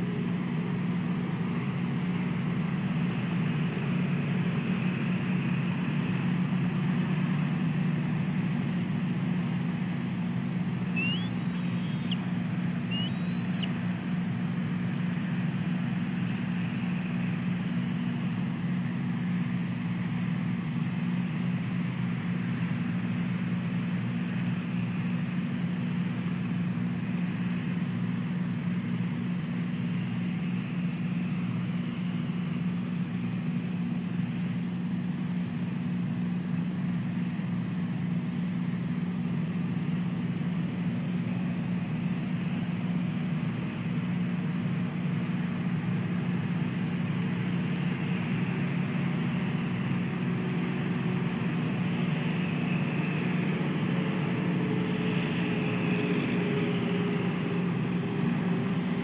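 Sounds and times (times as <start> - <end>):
low background hum: 0.0 - 59.0
faint high chirps: 10.9 - 13.8.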